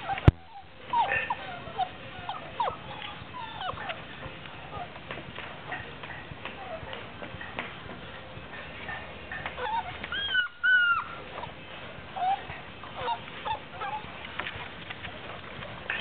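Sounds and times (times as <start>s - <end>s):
puppy yelps: 0.0s - 5.0s, 9.5s - 11.5s, 12.1s - 15.1s
puppies squealing and whining: 0.0s - 5.9s, 9.3s - 16.0s
light scuffling: 2.4s - 16.0s.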